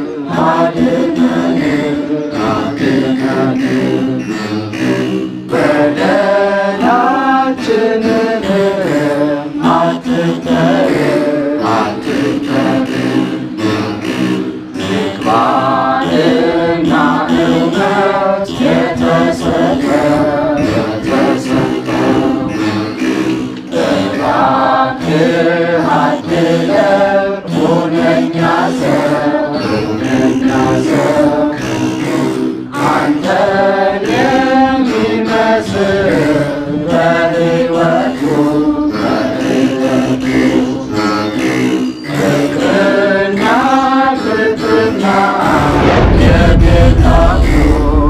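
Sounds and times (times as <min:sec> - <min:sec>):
man singing chant-like hymn: 0:00.0 - 0:48.0
loud rushing noise: 0:45.4 - 0:48.0.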